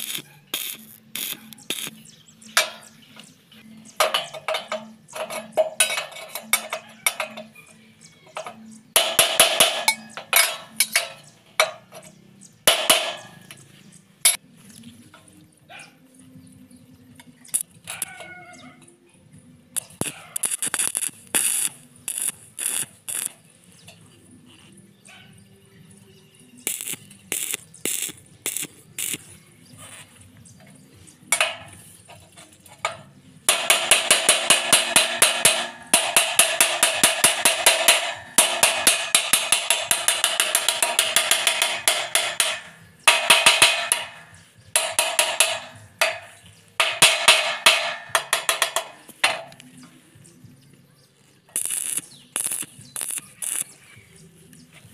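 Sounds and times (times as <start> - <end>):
welding arc crackling: 0.0 - 3.2, 19.8 - 23.8, 26.6 - 30.2, 31.3 - 49.6, 51.5 - 53.9.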